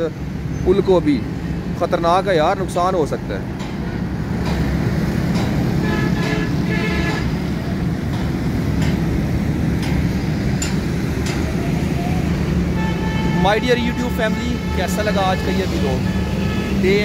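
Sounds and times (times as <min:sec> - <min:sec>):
busy road traffic rumble: 0:00.0 - 0:17.0
vehicle horn tooting: 0:05.8 - 0:07.4, 0:12.7 - 0:17.0.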